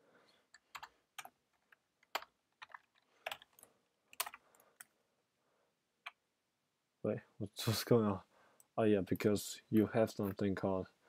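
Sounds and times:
typing on keyboard: 0.6 - 4.9.

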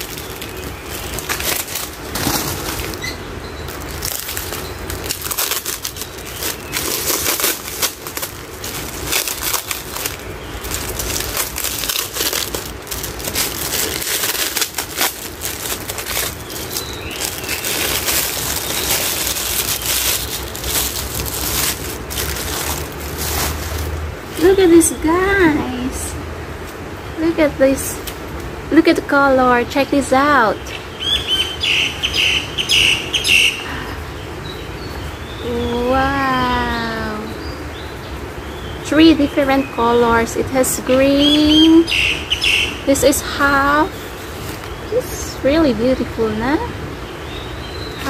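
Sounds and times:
plastic wrapping crinkling: 0.0 - 24.9, 43.0 - 45.2.

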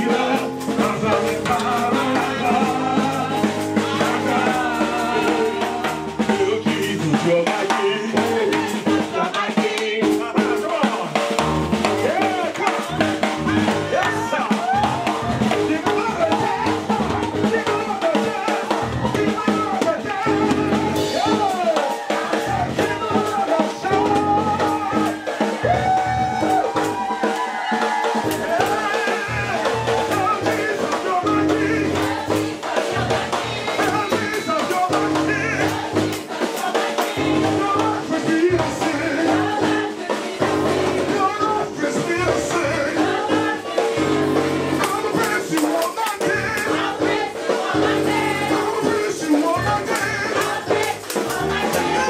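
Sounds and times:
bass line: 0.0 - 7.4, 11.4 - 18.0, 18.8 - 21.6, 22.4 - 27.1, 28.2 - 36.2
drum kit: 0.0 - 52.0
voices singing: 0.0 - 52.0.

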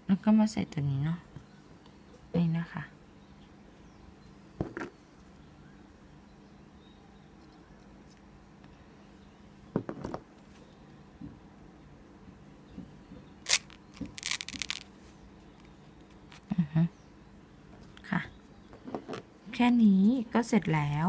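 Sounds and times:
scratchy rustle: 13.5 - 14.9.

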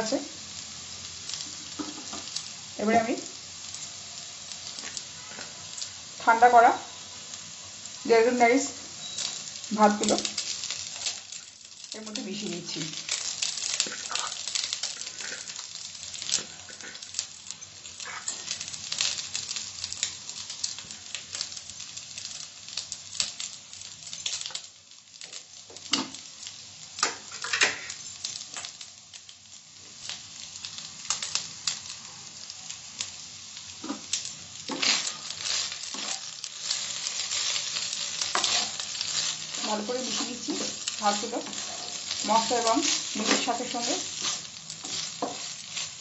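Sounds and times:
rice sizzling in hot oil: 0.0 - 46.0
wooden spatula stirring rice: 13.0 - 17.2, 34.7 - 46.0.

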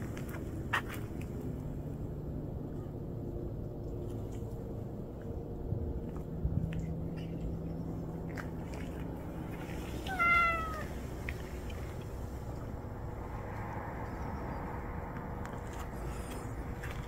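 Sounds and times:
cat meowing: 10.0 - 11.0.

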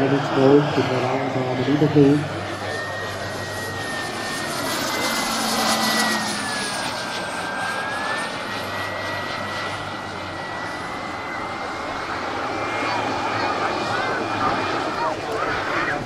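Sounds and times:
turboprop engine whine: 0.0 - 16.0.

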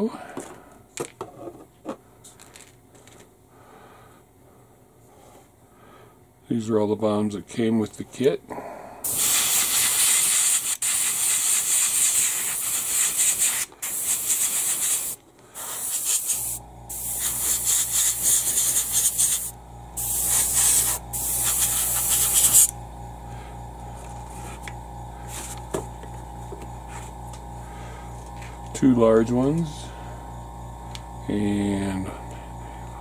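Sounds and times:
airbrush air hissing: 9.0 - 22.8, 24.3 - 25.7
low steady hum: 15.2 - 33.0.

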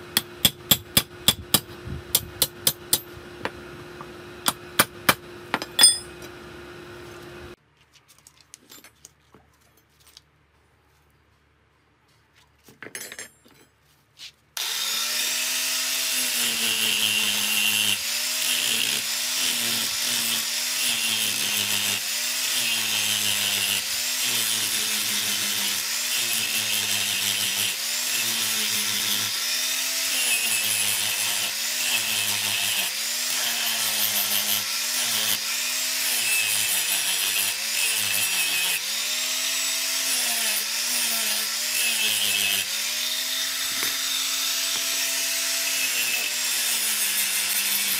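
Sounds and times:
angle grinder grinding metal: 14.6 - 47.9.

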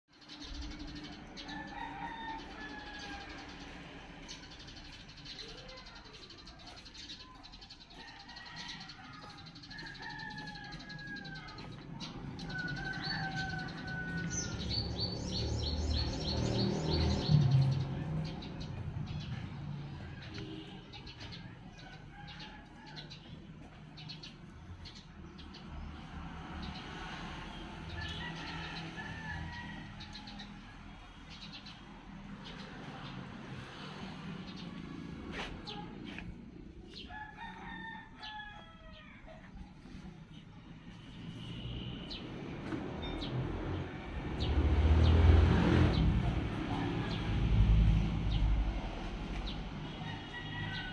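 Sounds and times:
songbird chirping: 0.1 - 25.9
rooster crowing: 1.4 - 3.6, 7.9 - 15.4, 28.0 - 30.7, 36.9 - 39.5, 45.9 - 48.5, 49.9 - 50.9.

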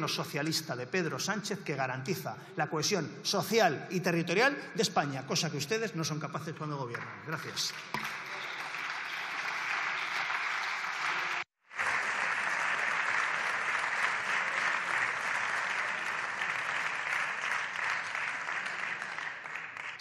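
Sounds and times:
crowd applauding: 7.5 - 20.0.

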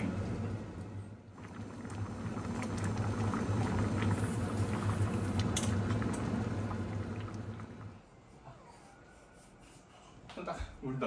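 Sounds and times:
stew bubbling in a pot: 0.0 - 8.1
gas burner hum: 0.0 - 8.2.

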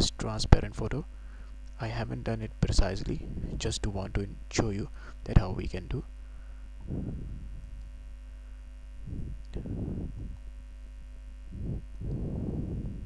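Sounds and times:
low electrical mains hum: 0.0 - 13.0
soft low wordless puffs: 6.2 - 10.6, 11.4 - 13.0.

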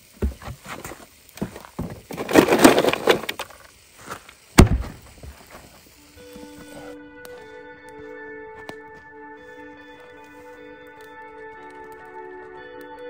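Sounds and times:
scraping rustle: 0.2 - 5.9
cooking gear clattering: 2.0 - 3.6
soft music: 6.0 - 13.0.

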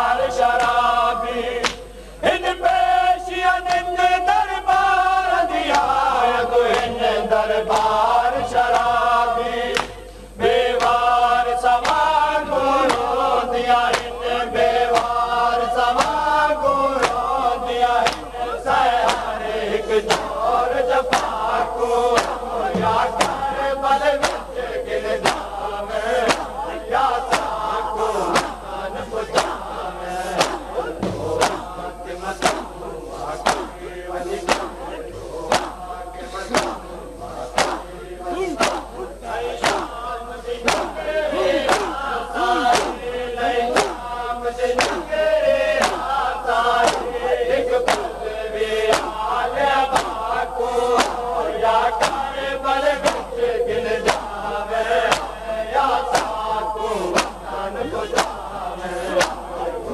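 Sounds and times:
men chanting a lament: 0.0 - 59.9
chest-beating slaps: 1.6 - 2.0, 9.7 - 10.1, 10.8 - 11.1, 11.8 - 12.1, 12.8 - 13.2, 13.8 - 16.2, 17.0 - 17.3, 18.0 - 44.2, 44.8 - 54.4, 55.0 - 55.4, 56.0 - 56.4, 57.0 - 58.5, 59.1 - 59.9.

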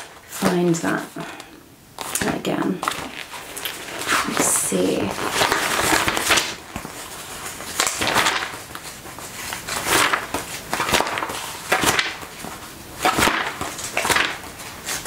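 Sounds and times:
magazine pages flipping: 0.0 - 15.0.

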